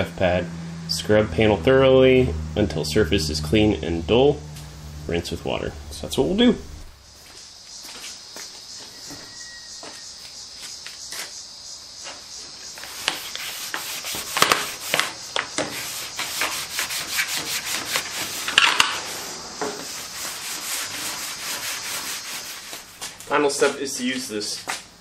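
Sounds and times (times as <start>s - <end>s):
scuff pad scrubbing plastic: 12.8s - 24.3s.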